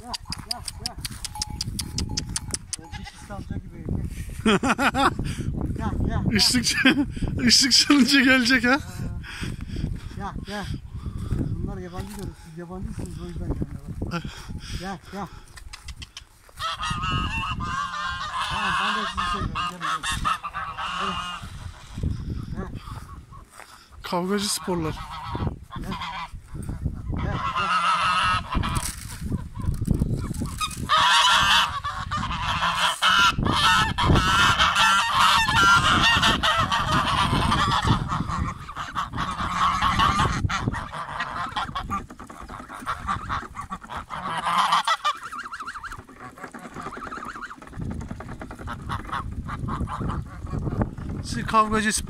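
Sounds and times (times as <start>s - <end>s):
geese honking: 16.0s - 52.0s.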